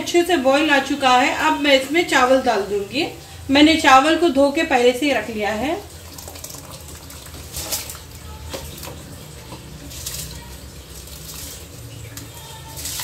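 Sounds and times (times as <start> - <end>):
rice poured into water: 5.9 - 9.2, 9.8 - 13.0.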